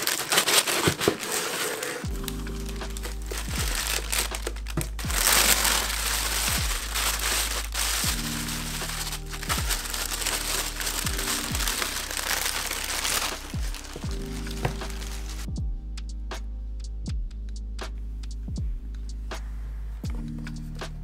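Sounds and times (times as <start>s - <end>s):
packaging crinkling and rustling: 0.0s - 15.5s
music with deep bass beat: 2.1s - 21.0s.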